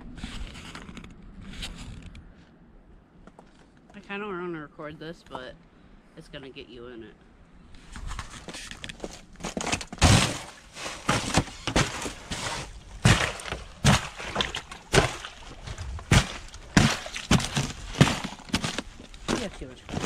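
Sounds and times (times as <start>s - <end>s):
ice cracking: 8.7s - 20.0s
boot stomping on thin ice: 9.0s - 20.0s.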